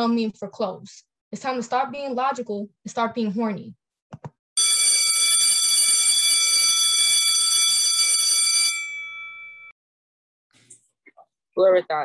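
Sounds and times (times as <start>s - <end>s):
electric alarm bell ringing: 4.6s - 9.8s.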